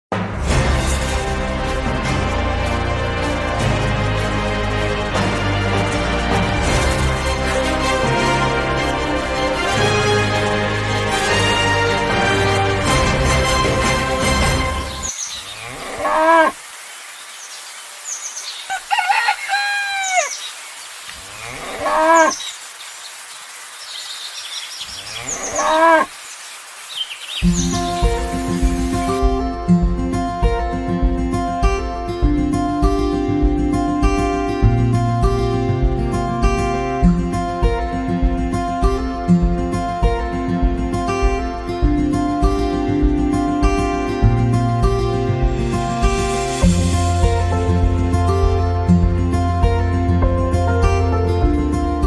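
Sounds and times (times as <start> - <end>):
small birds chirping: 14.9 - 29.0
cattle mooing: 15.6 - 16.6, 21.3 - 22.4, 25.1 - 26.1
background music with heavy bass: 27.8 - 52.0.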